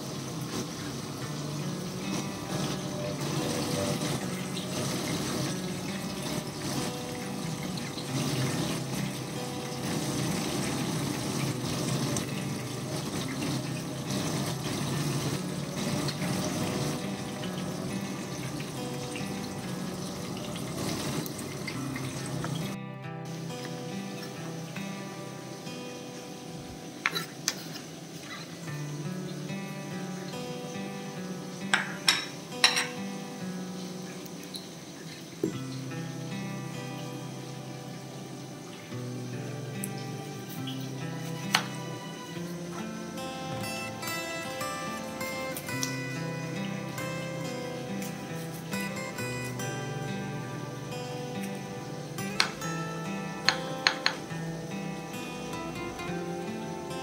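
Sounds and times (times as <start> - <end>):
background music with held notes: 0.0 - 57.0
okra sizzling in hot oil: 0.0 - 57.0
sharp taps on cutting board: 53.5 - 54.2.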